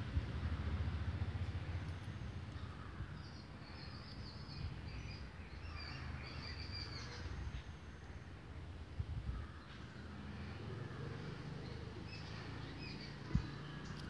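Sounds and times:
bird chirping: 11.6s - 14.0s.

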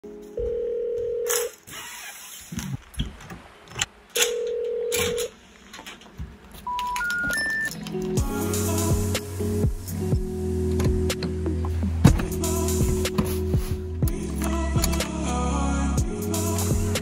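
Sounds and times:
telephone ringback tone: 0.4s - 1.5s, 4.2s - 5.3s, 6.7s - 7.7s
knocks and clicks: 10.7s - 13.3s.

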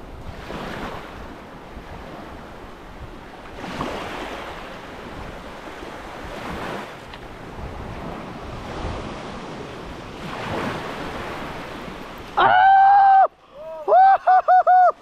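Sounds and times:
wind on microphone: 0.0s - 12.4s
small waves washing on beach: 0.0s - 13.9s
man yelling: 12.4s - 14.9s.

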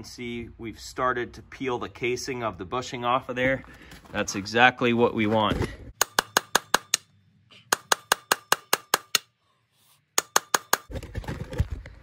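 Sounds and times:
hammer striking screwdriver: 6.0s - 7.1s, 10.2s - 10.9s.

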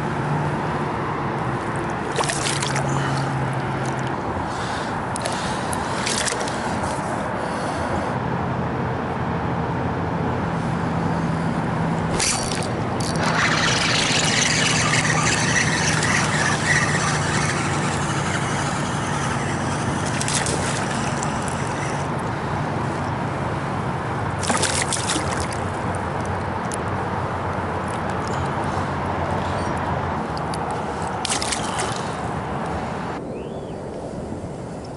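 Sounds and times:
water lapping: 1.7s - 7.1s, 12.1s - 22.1s, 24.4s - 25.8s, 30.9s - 32.2s
fish splashing at surface: 2.0s - 4.0s, 5.2s - 6.7s, 12.1s - 18.4s, 20.0s - 22.0s, 24.4s - 25.6s, 31.2s - 32.2s.

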